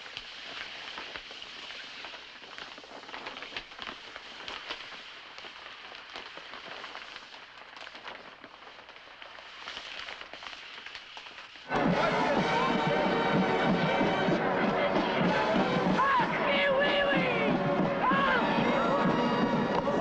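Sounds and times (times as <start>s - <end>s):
steady crackle and hiss: 0.0s - 20.0s.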